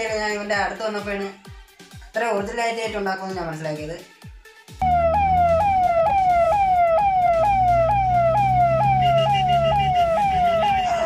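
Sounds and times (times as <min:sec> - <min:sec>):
low hum: 0:04.8 - 0:10.8
electronic siren wailing: 0:04.8 - 0:11.0.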